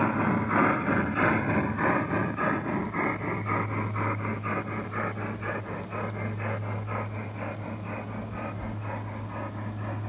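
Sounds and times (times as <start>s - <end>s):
low steady hum: 0.0s - 10.0s
model train wheels clicking: 0.0s - 10.0s.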